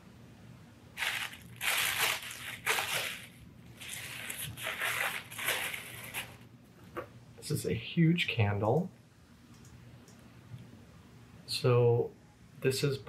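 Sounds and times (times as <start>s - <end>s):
tissue paper rustling: 1.0s - 6.4s.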